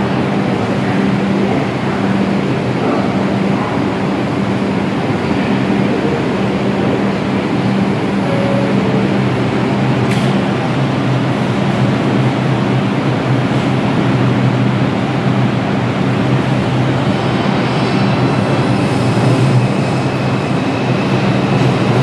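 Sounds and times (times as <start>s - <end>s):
train equipment humming: 0.0s - 22.0s
two-note door chime: 8.2s - 10.5s.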